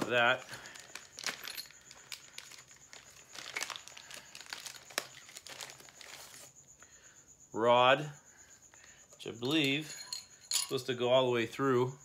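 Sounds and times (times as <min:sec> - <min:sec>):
packaging crinkling and rustling: 0:00.0 - 0:06.5.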